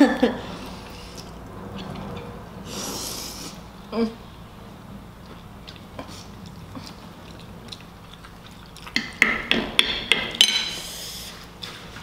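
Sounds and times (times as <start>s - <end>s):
chewing noodles: 5.2s - 9.2s.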